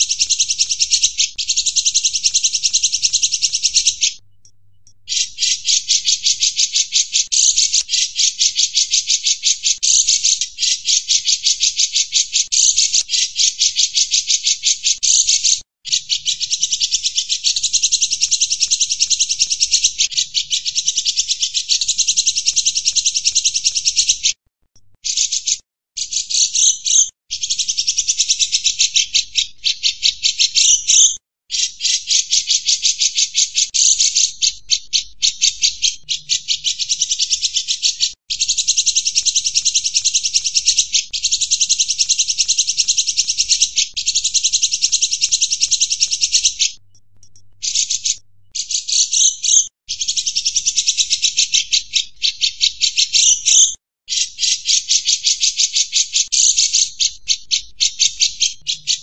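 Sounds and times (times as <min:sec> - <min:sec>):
bird singing fast chatter: 0:00.0 - 0:24.4, 0:25.0 - 0:59.0.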